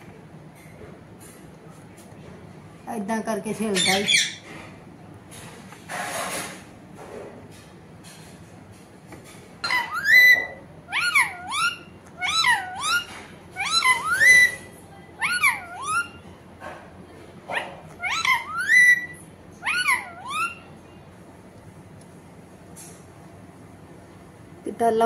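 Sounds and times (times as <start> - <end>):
parakeet calling: 3.6 - 4.5, 9.6 - 16.3, 17.5 - 20.9.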